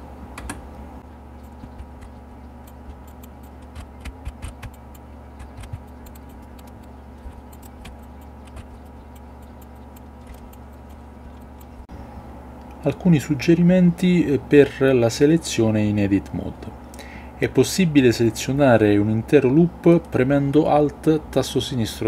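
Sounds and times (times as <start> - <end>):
low electrical hum: 0.0 - 22.0
mouse and keyboard clicks: 1.4 - 11.9.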